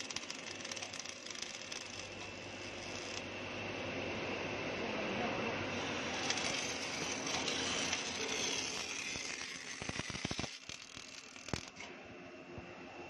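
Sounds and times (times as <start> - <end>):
welding pops and clicks: 0.0 - 3.2, 7.3 - 11.9
welding arc crackling: 0.0 - 3.3, 5.7 - 11.9.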